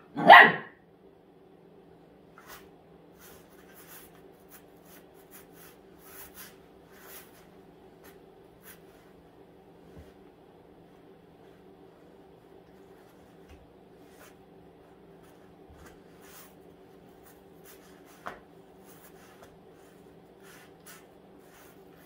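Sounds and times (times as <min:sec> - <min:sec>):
puppy barking: 0:00.0 - 0:00.8
low steady hum: 0:00.0 - 0:22.0
scratching and rustling in blankets: 0:02.3 - 0:22.0.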